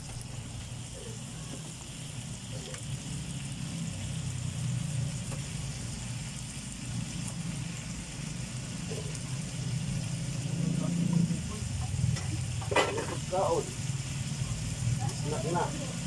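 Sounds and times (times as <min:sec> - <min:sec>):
faint sizzling: 0:00.0 - 0:16.0
low engine-like hum: 0:02.4 - 0:12.7.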